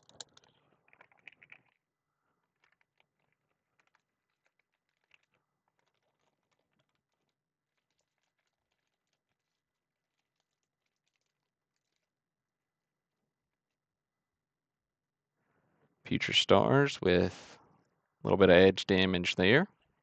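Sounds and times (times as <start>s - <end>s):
wax paper wrapper crinkling: 2.5s - 12.2s.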